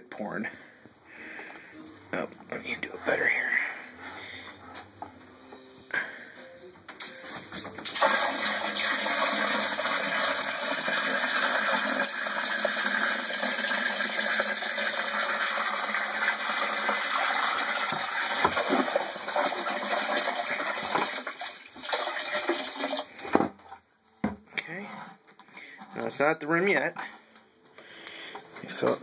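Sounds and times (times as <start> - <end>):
water pouring and splashing: 7.0 - 23.3.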